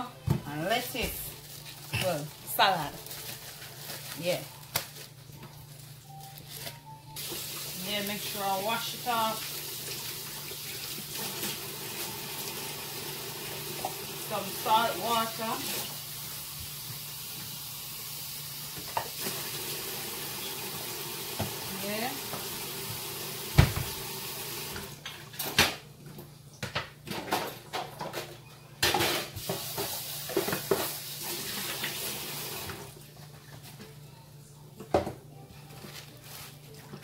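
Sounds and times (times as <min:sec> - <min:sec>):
tap water running into sink: 0:07.2 - 0:14.7, 0:15.4 - 0:25.0, 0:29.4 - 0:33.0
dishes clattering in a sink: 0:18.7 - 0:19.5, 0:26.6 - 0:32.0.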